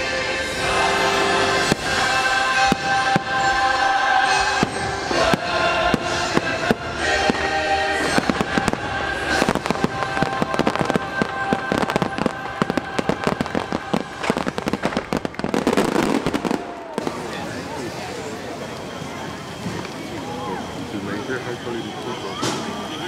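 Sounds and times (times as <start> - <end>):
show music: 0.0 - 17.5
fireworks bangs and crackles: 0.0 - 23.0.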